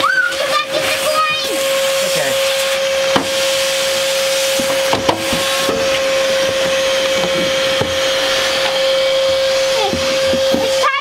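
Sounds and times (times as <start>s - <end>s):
shop vacuum running: 0.0s - 11.0s
nozzle knocking on metal: 4.6s - 8.2s.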